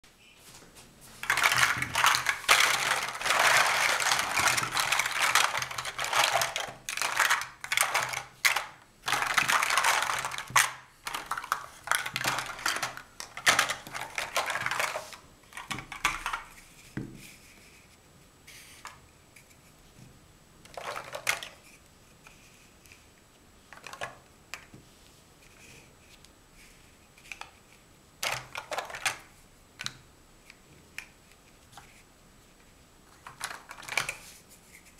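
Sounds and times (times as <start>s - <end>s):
plastic blocks clattering: 1.2s - 16.6s, 20.6s - 21.7s, 23.7s - 24.7s, 28.2s - 30.0s, 33.1s - 34.9s
plastic blocks knocking: 1.2s - 16.6s, 20.7s - 21.6s, 23.7s - 24.7s, 28.2s - 30.0s, 33.1s - 34.2s.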